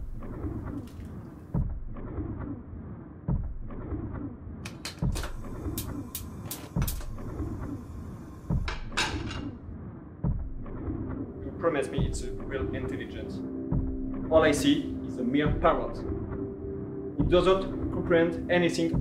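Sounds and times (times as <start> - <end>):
low repeating beat: 0.0 - 0.8, 1.5 - 2.6, 3.3 - 4.3, 5.0 - 19.0
dark hum: 5.1 - 19.0.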